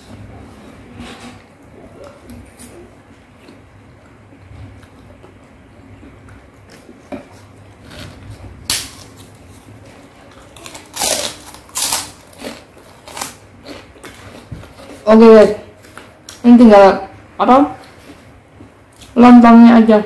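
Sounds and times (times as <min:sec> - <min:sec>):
person chewing: 0:01.9 - 0:15.1.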